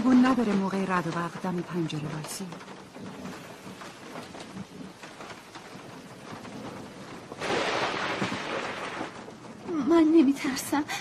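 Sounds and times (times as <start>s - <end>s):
steady rain hissing: 0.0s - 11.0s.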